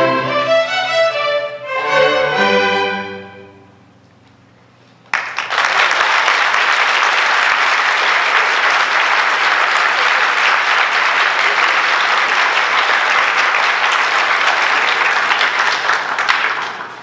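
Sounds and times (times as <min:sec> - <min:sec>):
large audience applauding: 0:05.1 - 0:17.0.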